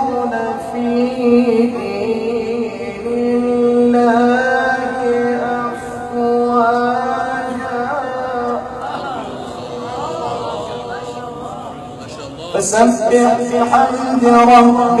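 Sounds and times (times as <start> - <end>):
man chanting melodically: 3.9 - 15.0.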